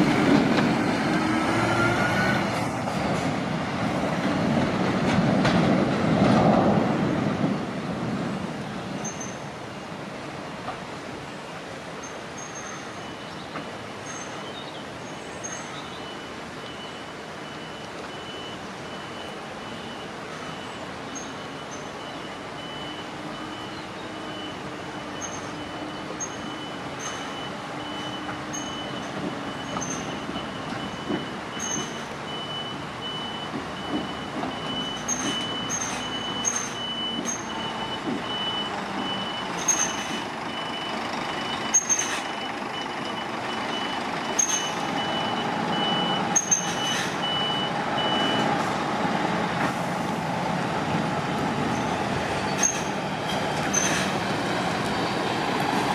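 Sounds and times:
reverse alarm beeping: 0:16.0 - 0:48.5.

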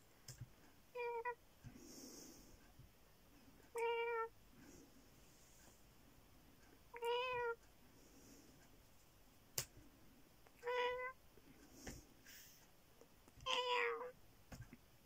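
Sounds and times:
cat meowing: 0:03.7 - 0:04.3, 0:06.9 - 0:07.6, 0:10.6 - 0:11.2, 0:13.4 - 0:14.1.

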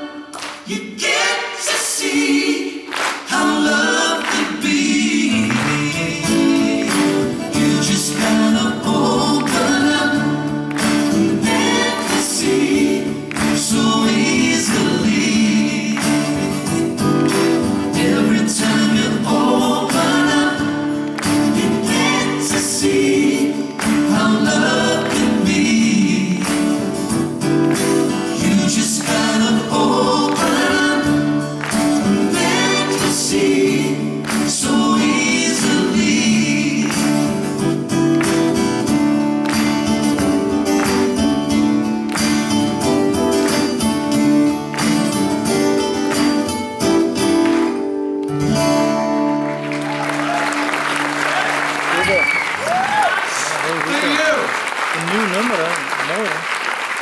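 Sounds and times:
men singing in harmony: 0:00.0 - 0:16.8, 0:17.7 - 0:27.1, 0:28.2 - 0:37.9
strummed acoustic guitars: 0:02.1 - 0:52.6.

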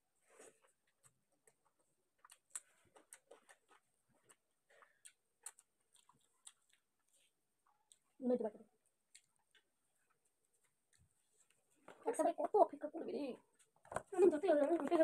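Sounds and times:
mouth chewing: 0:00.5 - 0:08.2, 0:09.0 - 0:11.6.

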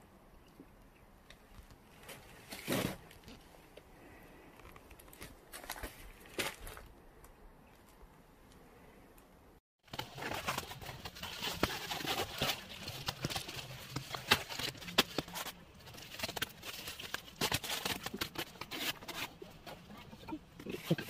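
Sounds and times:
paper crinkling and rustling: 0:09.9 - 0:21.0.

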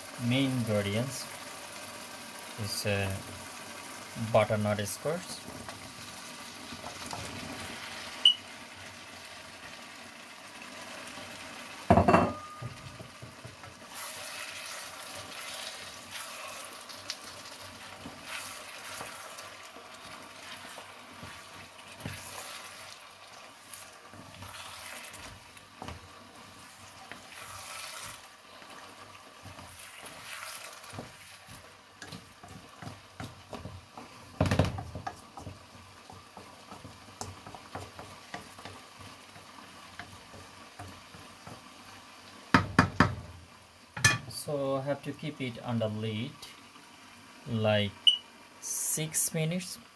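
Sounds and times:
sauce sizzling: 0:00.0 - 0:49.9
wooden spatula scraping a wok: 0:12.7 - 0:42.0.

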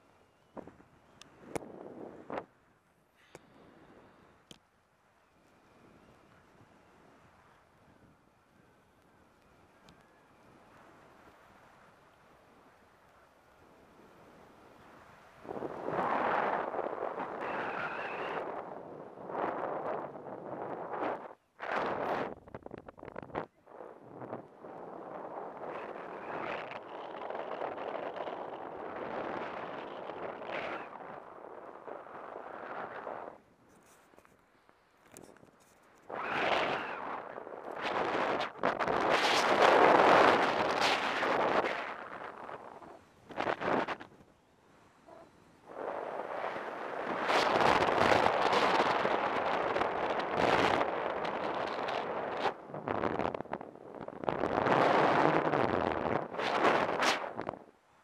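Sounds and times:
wind buffeting microphone: 0:15.1 - 0:33.8, 0:36.1 - 0:44.3, 0:45.1 - 0:57.7.

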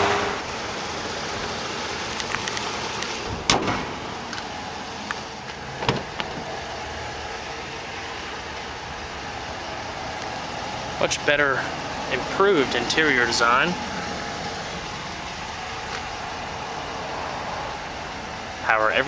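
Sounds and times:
truck engine idling: 0:00.0 - 0:19.0
hood slamming shut: 0:03.2 - 0:04.3, 0:05.7 - 0:06.6.

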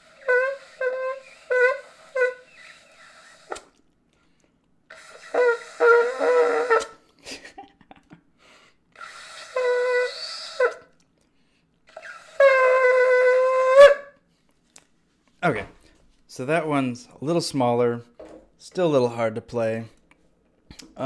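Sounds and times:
shofar blasts: 0:00.0 - 0:02.5, 0:05.2 - 0:06.9, 0:09.6 - 0:10.8, 0:12.4 - 0:14.2.

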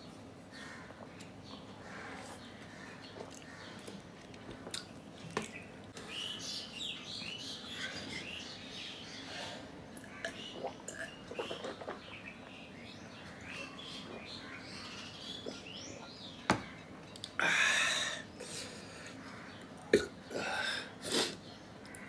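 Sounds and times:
man gulping water: 0:10.0 - 0:11.9.

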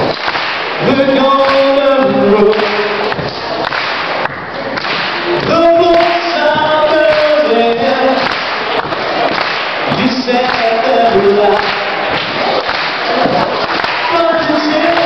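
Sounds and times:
young man singing a cappella: 0:00.8 - 0:03.1, 0:05.4 - 0:08.3, 0:09.9 - 0:12.0, 0:14.1 - 0:15.0.

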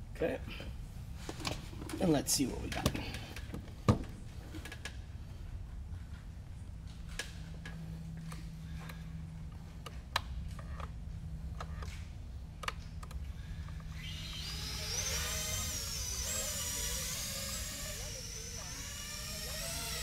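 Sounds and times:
drone motors whining: 0:06.8 - 0:20.0.

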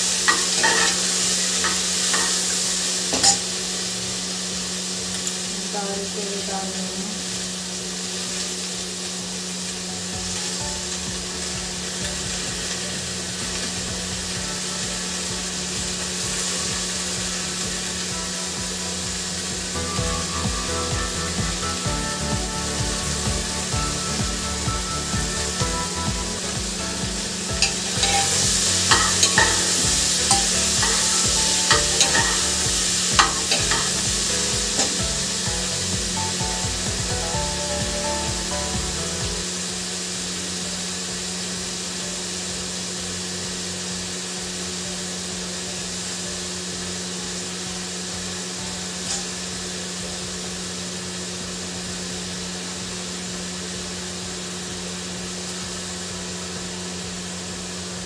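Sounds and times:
low hum: 0:00.0 - 0:43.6
food sizzling in oil: 0:00.0 - 0:58.0
metal ladle scraping pot: 0:27.6 - 0:32.6.

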